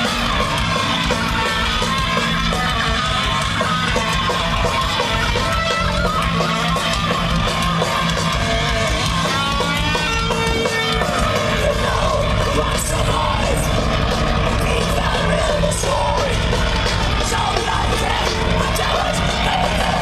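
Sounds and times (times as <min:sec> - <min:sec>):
live thrash metal band: 0:00.0 - 0:20.0.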